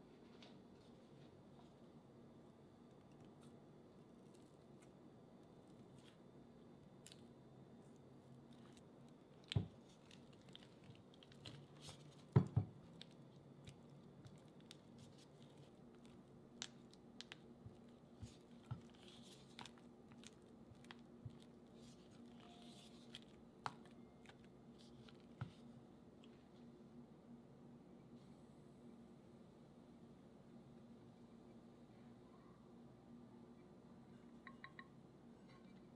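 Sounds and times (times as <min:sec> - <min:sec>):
spatula squishing cream cheese: 0:02.9 - 0:26.4.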